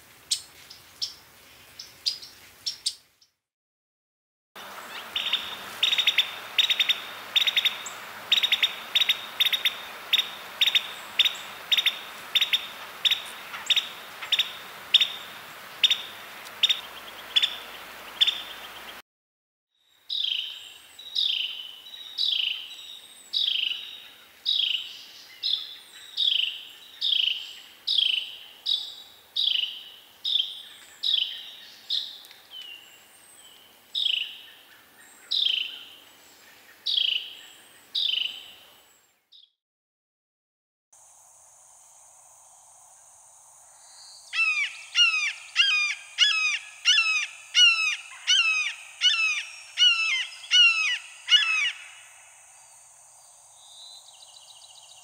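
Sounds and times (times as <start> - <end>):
wren call notes: 4.6 - 19.0, 44.3 - 52.3.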